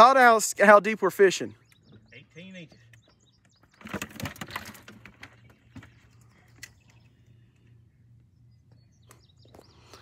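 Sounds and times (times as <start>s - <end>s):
low steady hum: 1.4s - 10.0s
faint bird chirps: 1.5s - 4.0s, 5.3s - 10.0s
handling clicks and rustling: 2.9s - 6.9s.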